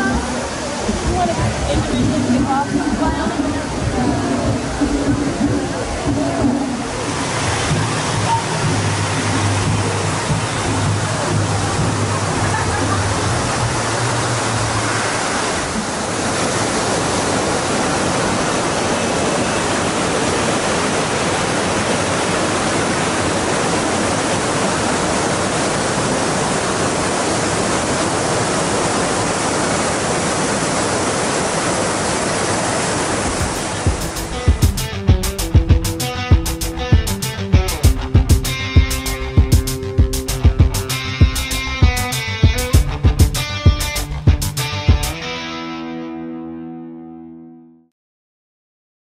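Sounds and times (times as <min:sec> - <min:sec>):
waterfall rushing: 0:00.0 - 0:45.9
strummed guitar music: 0:33.8 - 0:47.8.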